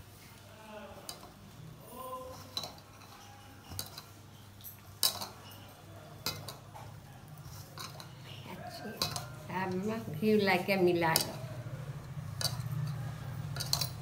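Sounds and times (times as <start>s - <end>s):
bangles clinking against bowl: 2.3s - 10.0s, 10.6s - 14.0s.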